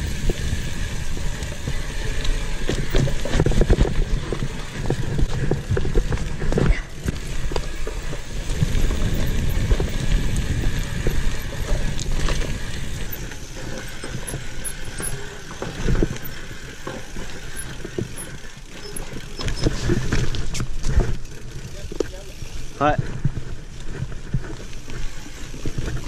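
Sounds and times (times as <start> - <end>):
bike rattling and knocking: 0.0 - 26.0
bike tyres rumbling over dirt: 0.0 - 26.0.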